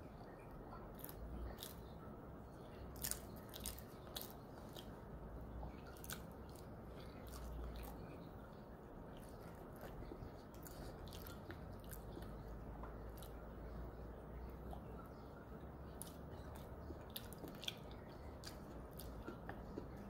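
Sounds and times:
person chewing: 0:00.9 - 0:02.0, 0:02.8 - 0:08.3, 0:09.1 - 0:13.9, 0:15.8 - 0:20.0.

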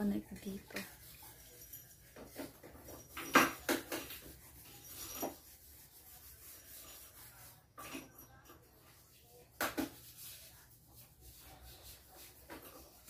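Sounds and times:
makeup brush swishing on skin: 0:08.9 - 0:13.0.

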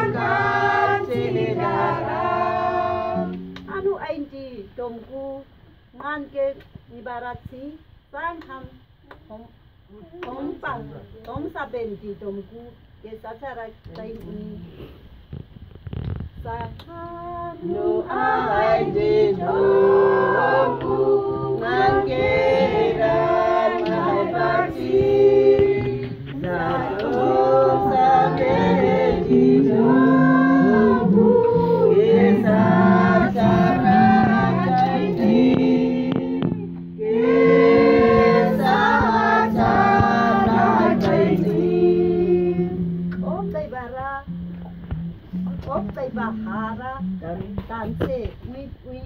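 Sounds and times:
adults and children singing: 0:00.0 - 0:03.5, 0:16.8 - 0:42.9
acoustic guitar: 0:00.0 - 0:04.3, 0:14.1 - 0:49.0.

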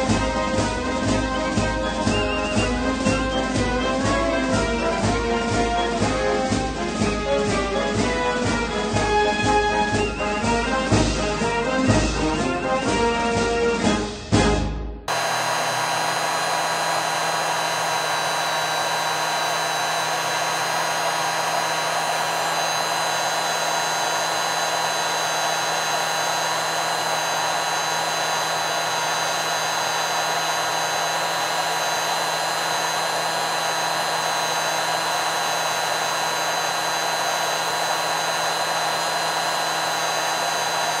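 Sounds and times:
heat gun blowing: 0:15.1 - 0:41.0.

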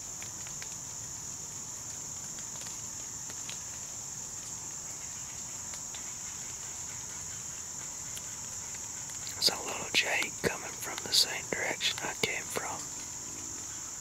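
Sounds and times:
insects trilling: 0:00.0 - 0:14.0
faint clicks: 0:00.2 - 0:01.0, 0:08.1 - 0:13.8.

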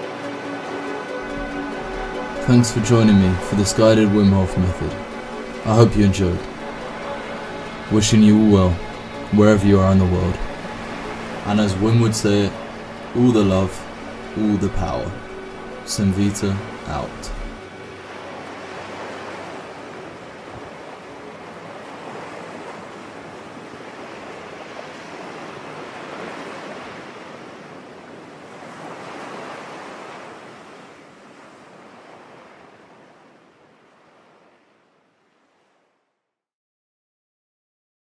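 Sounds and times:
steady rushing noise: 0:00.0 - 0:26.8.

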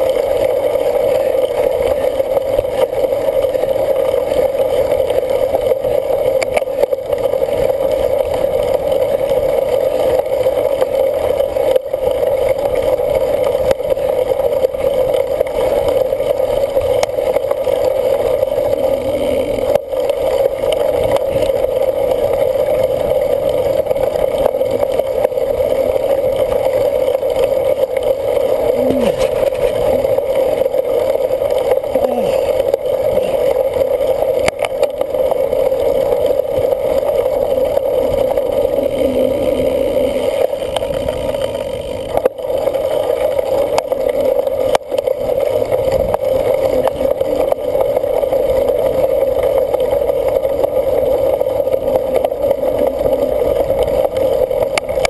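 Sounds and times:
bike riding noise: 0:00.0 - 0:55.0.

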